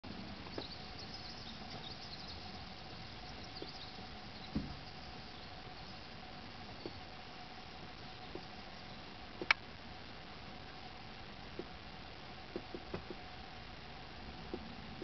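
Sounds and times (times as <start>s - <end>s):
faint hiss and hum: 0.0s - 15.0s
faint high chirps: 0.1s - 9.2s
soft low thump: 4.5s - 4.9s.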